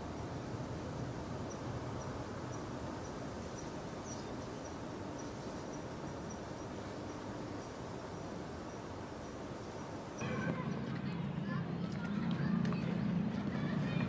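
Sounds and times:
cricket chirping: 0:00.0 - 0:10.2
low background noise: 0:00.0 - 0:14.0.

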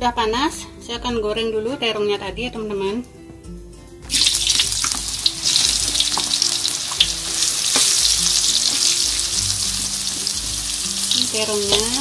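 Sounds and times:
oil sizzling in a wok: 0:04.1 - 0:12.0.

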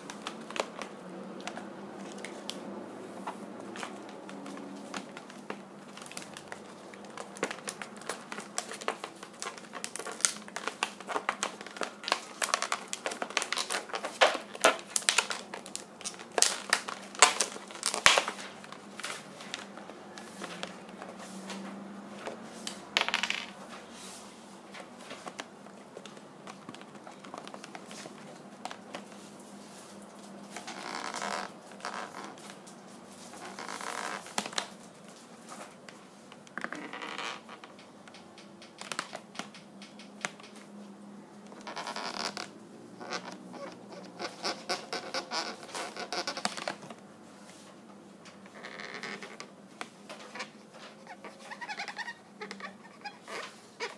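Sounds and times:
balloons squeaking and rubbing: 0:03.3 - 0:20.8, 0:30.5 - 0:32.6, 0:41.5 - 0:46.8, 0:50.2 - 0:53.9.

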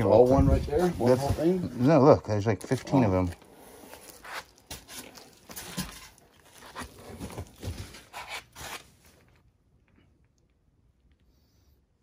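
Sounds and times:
bubble wrap and cardboard crinkling: 0:00.0 - 0:09.5.

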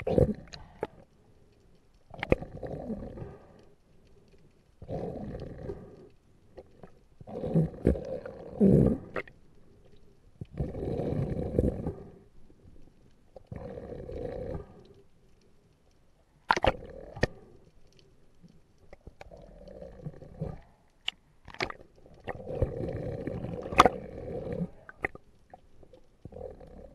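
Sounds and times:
gurgling snorkel breaths: 0:02.1 - 0:12.3, 0:21.6 - 0:25.3.

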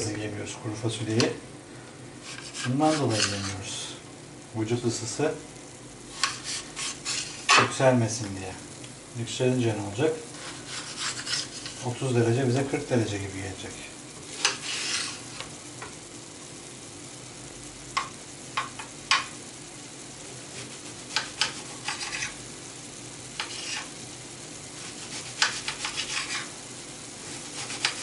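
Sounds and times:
vegetables sizzling in oil: 0:00.0 - 0:28.0
utensil scraping a pan: 0:02.2 - 0:03.8, 0:06.1 - 0:07.8, 0:10.3 - 0:11.8, 0:14.3 - 0:15.5, 0:20.6 - 0:22.4, 0:23.4 - 0:24.0, 0:24.8 - 0:26.6, 0:27.3 - 0:28.0.

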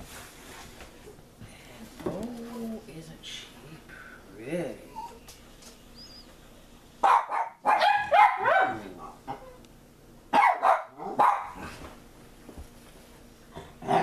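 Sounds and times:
dogs barking: 0:07.0 - 0:09.6, 0:10.3 - 0:11.7.

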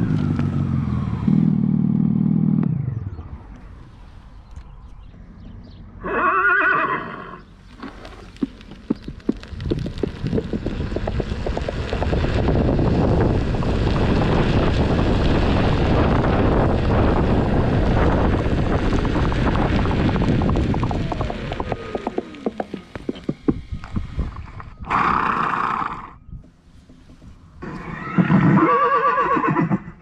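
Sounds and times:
horse whinny: 0:06.0 - 0:07.5, 0:24.8 - 0:26.2, 0:27.6 - 0:30.0
hoof clip-clops: 0:07.7 - 0:25.4.

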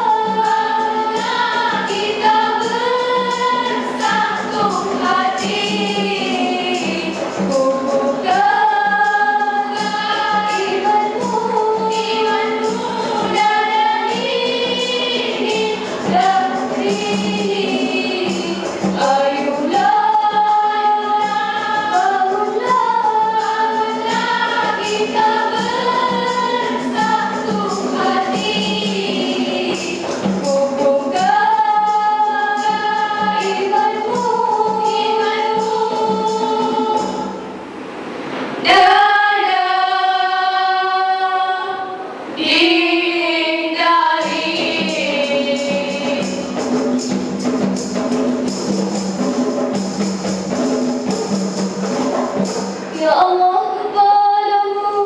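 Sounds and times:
girls singing together: 0:00.0 - 0:48.6, 0:49.6 - 0:55.0.

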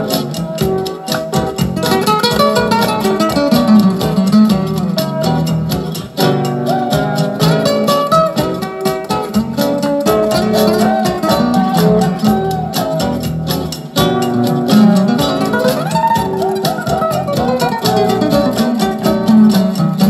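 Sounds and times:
busy melody through speakers: 0:00.0 - 0:20.0.

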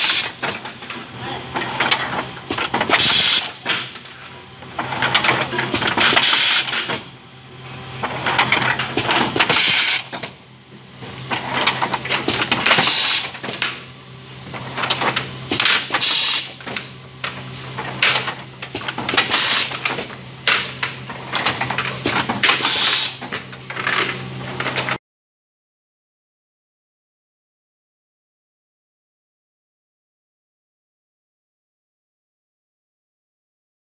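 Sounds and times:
filling machine humming and clattering: 0:00.0 - 0:25.0.

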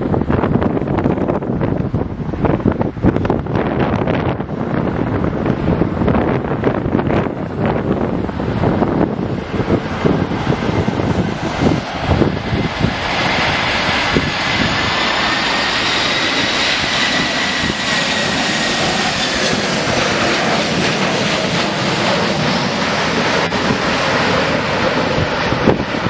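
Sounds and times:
jet airliner landing: 0:00.0 - 0:26.0.

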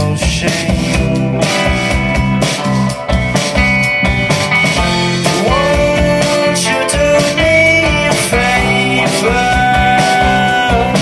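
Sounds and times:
drum hits: 0:00.0 - 0:11.0
live rock band playing: 0:00.0 - 0:11.0.

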